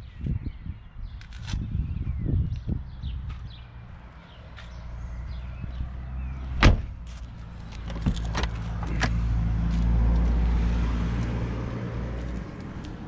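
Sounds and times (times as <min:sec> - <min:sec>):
car door shutting thump: 0:06.6 - 0:07.0.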